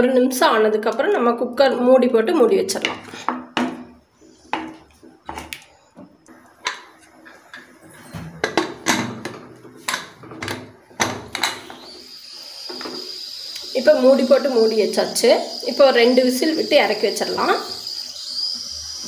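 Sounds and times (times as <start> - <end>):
ladle knocking metal pot: 8.4 - 11.6.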